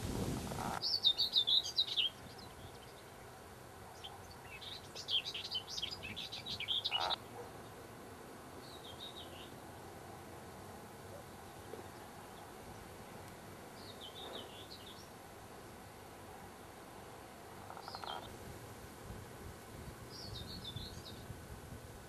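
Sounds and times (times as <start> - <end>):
songbird twittering: 0.8 - 3.1, 4.0 - 7.2, 17.7 - 18.3, 20.1 - 21.3.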